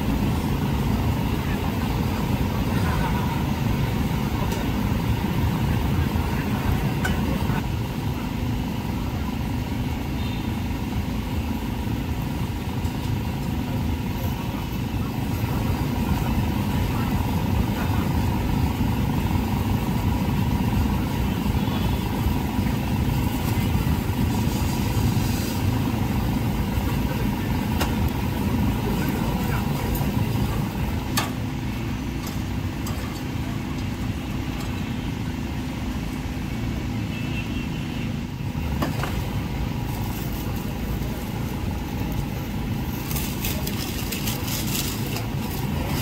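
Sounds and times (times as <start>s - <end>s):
faint constant hum: 0.0s - 46.0s
steady low rumble: 10.8s - 36.6s.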